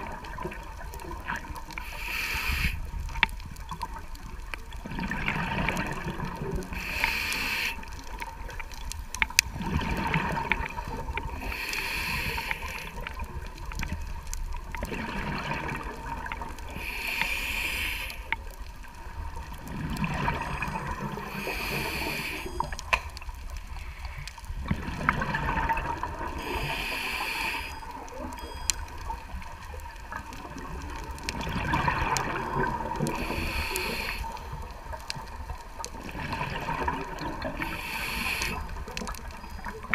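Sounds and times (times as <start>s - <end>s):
low rumble of water: 0.0s - 39.9s
regulator inhale hissing: 1.8s - 2.9s, 6.8s - 8.0s, 11.4s - 13.0s, 16.7s - 18.4s, 21.3s - 22.7s, 26.4s - 27.9s, 33.1s - 34.6s, 37.6s - 38.8s
bubbling exhale: 9.6s - 13.1s, 19.7s - 22.8s, 23.8s - 27.9s, 31.4s - 34.6s, 36.1s - 38.9s.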